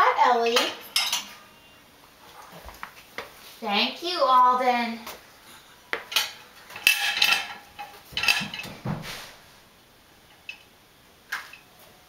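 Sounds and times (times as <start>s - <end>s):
dishes clinking and clattering: 0.6s - 1.4s, 6.0s - 9.1s.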